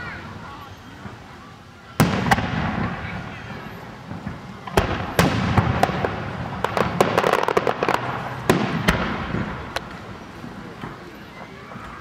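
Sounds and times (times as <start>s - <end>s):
crackling firework reports: 0.0s - 12.0s
firework shells bursting: 1.9s - 11.2s.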